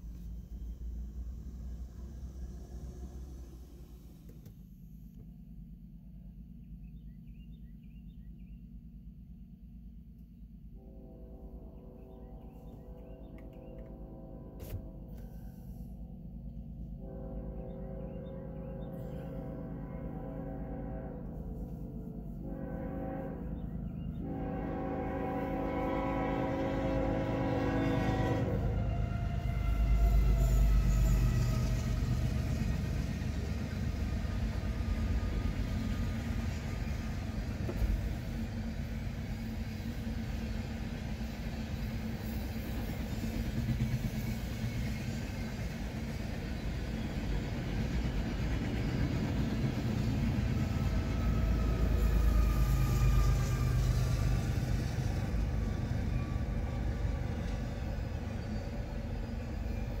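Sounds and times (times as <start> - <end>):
diesel locomotive rumbling: 0.0 - 60.0
train horn: 10.7 - 15.9, 16.8 - 33.1, 50.0 - 60.0
freight cars rolling on rails: 25.2 - 60.0.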